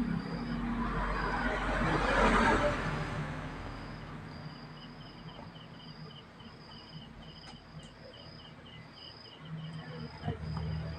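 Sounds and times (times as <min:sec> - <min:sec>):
faint insect chirping: 0:00.0 - 0:01.7, 0:02.3 - 0:10.9.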